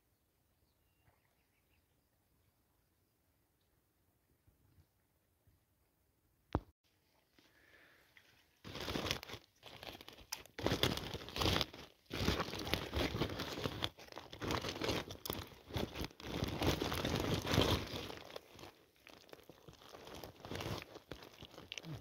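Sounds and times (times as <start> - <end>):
plastic sack crinkling: 8.6 - 22.0.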